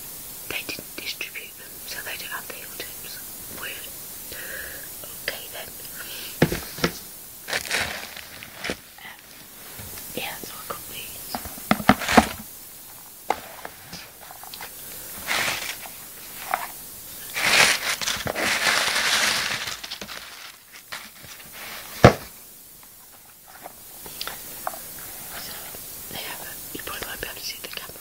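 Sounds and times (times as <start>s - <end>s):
tissue paper rustling and crinkling: 7.4s - 9.9s, 11.3s - 12.5s, 13.3s - 22.3s.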